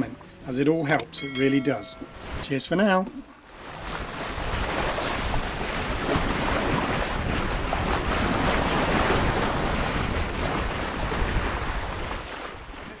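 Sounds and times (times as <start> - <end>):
water rushing along boat hull: 0.0 - 13.0
wind buffeting microphone: 3.5 - 13.0.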